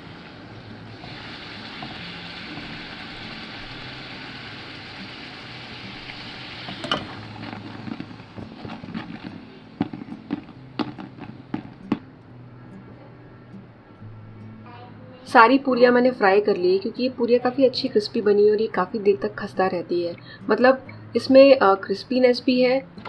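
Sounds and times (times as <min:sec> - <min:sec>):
dough deep-frying in oil sizzling: 0:00.0 - 0:11.6.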